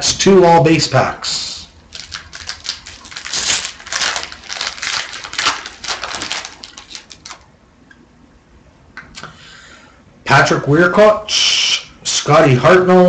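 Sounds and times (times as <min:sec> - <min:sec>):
cards and wrappers rustling: 0:01.9 - 0:07.5.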